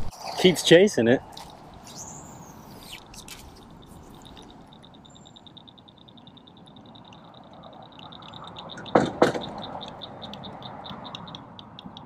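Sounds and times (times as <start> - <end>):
frog calling with clicking notes: 1.3 - 12.0
sharp knocks: 8.8 - 9.7.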